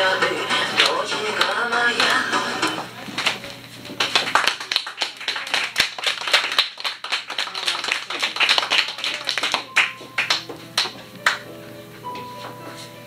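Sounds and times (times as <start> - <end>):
audience applauding: 4.0 - 11.4.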